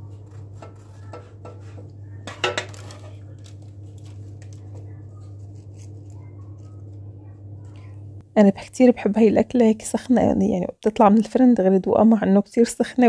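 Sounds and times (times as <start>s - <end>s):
steady low hum: 0.0s - 13.0s
dishes clicking and clinking: 0.6s - 3.2s
kitchenware clatter: 0.6s - 3.2s.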